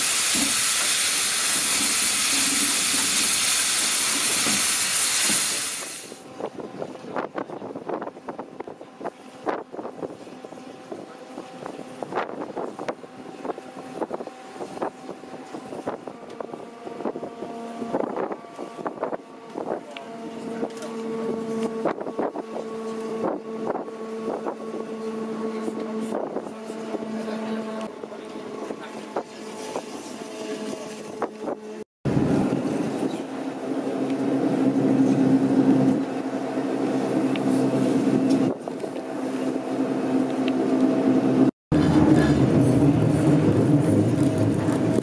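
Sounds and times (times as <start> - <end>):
train hum: 0.0 - 45.0
rotary snowplow mechanical noise: 10.3 - 45.0.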